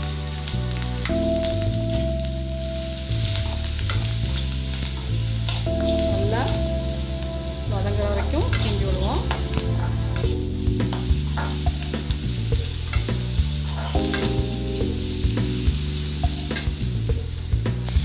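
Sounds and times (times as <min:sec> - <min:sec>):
onions sizzling in hot oil: 0:00.0 - 0:18.0
soft background music: 0:00.0 - 0:18.0
metal spoon scraping pan: 0:12.9 - 0:14.3.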